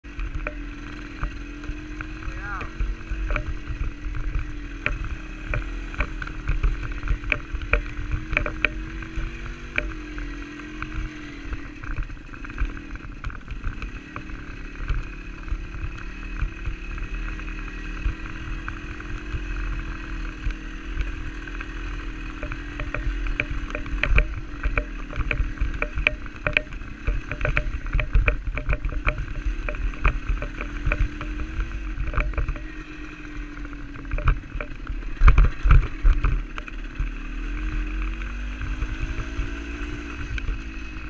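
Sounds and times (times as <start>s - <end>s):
wind rumbling on microphone: 0.0s - 10.4s, 15.5s - 41.0s
dirt bike engine: 0.0s - 41.0s
sharp knocks of bike jolting: 22.4s - 33.0s.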